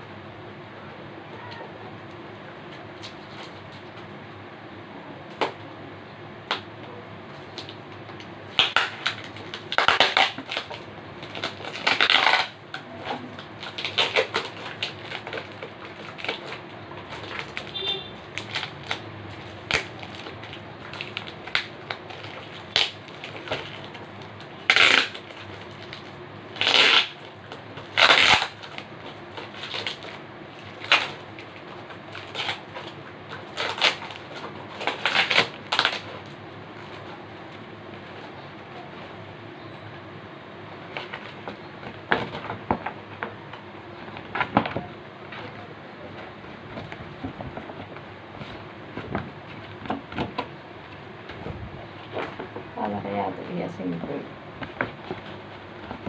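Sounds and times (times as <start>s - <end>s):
plastic packaging rustling: 7.2s - 39.2s, 40.8s - 56.0s.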